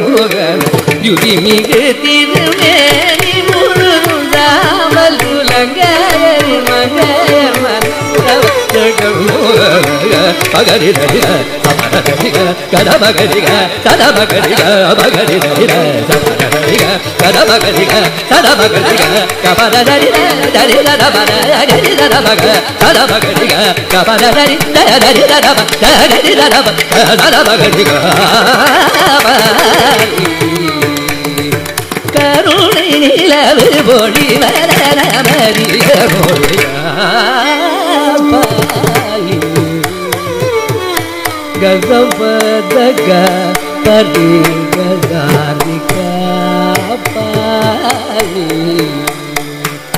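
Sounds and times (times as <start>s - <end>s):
man singing ornamented melody: 0.0s - 49.9s.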